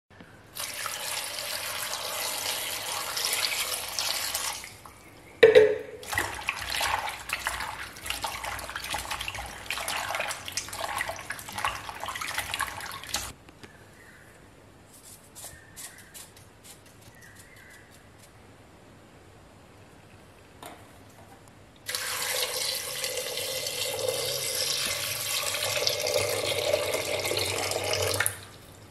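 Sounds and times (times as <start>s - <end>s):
water pouring into pot: 0.6s - 4.9s, 6.0s - 13.3s, 21.9s - 28.6s.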